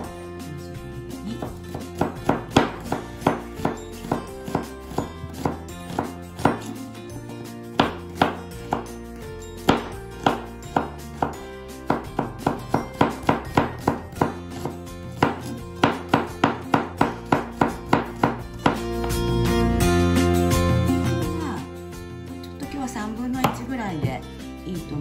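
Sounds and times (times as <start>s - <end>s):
soft background music: 0.0s - 25.0s
knife chopping on cutting board: 1.3s - 6.8s, 7.8s - 9.0s, 9.6s - 19.2s, 23.4s - 23.7s.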